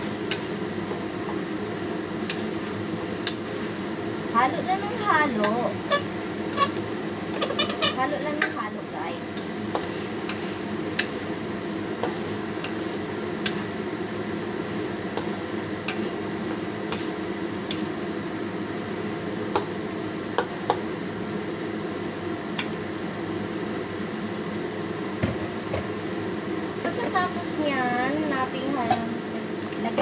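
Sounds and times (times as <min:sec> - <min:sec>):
utensil scraping a wok: 0:00.0 - 0:01.5, 0:02.1 - 0:04.0, 0:04.8 - 0:18.2
low frying sound: 0:00.0 - 0:30.0.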